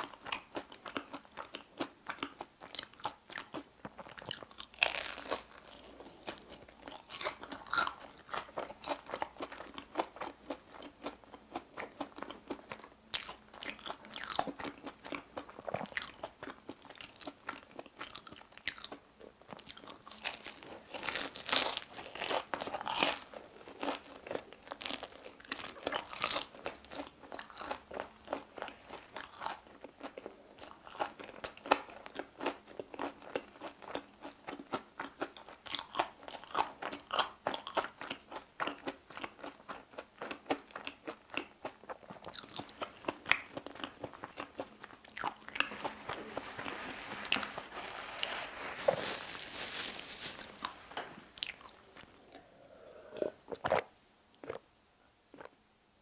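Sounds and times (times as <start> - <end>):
crunchy biting and chewing: 0.0 - 47.7, 49.8 - 52.5.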